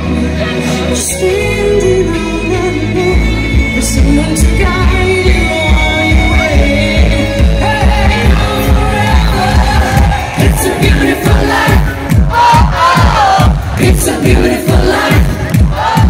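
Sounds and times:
woman singing: 0:00.0 - 0:16.0
kick drum beat: 0:09.2 - 0:16.0.

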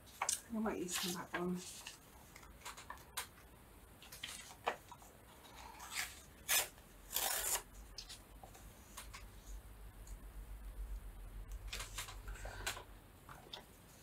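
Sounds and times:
paper rustling: 0:00.1 - 0:03.1, 0:04.0 - 0:08.2.

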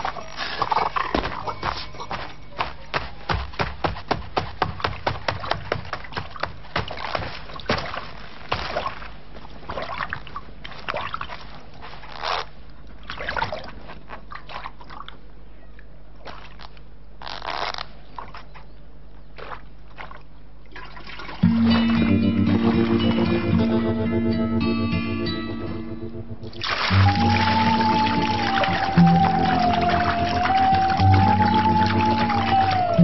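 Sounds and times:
sloshing and scraping: 0:00.0 - 0:15.2, 0:19.4 - 0:23.8, 0:26.5 - 0:33.0
low steady hum: 0:00.0 - 0:17.2, 0:17.8 - 0:33.0
sharp knocks: 0:02.9 - 0:08.8.

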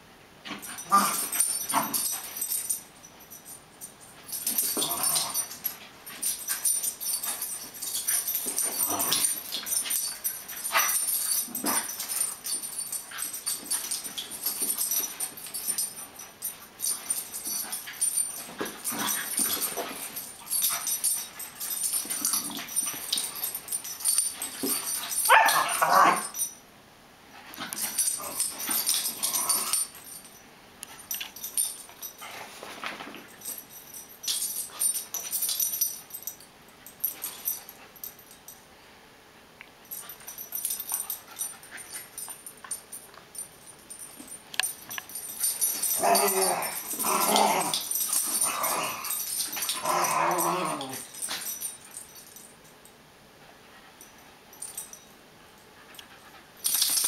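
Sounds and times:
dogs scuffling: 0:00.5 - 0:26.5.

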